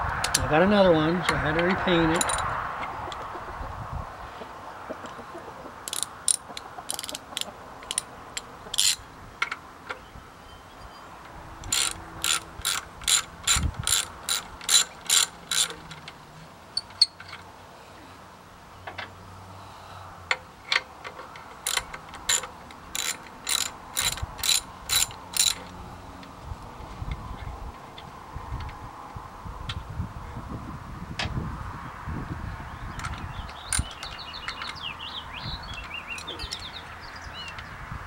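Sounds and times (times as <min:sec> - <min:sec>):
ratchet wrench clicking: 0:02.1 - 0:02.5, 0:05.9 - 0:09.6, 0:11.6 - 0:16.2, 0:20.7 - 0:25.8.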